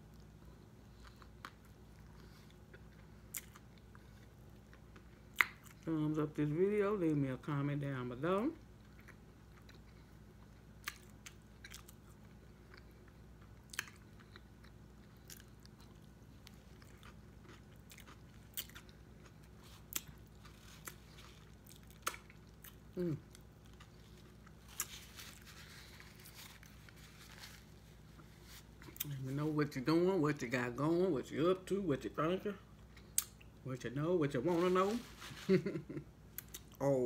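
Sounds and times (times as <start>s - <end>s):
faint low hum: 0.0s - 37.0s
wet chewing: 8.8s - 29.1s.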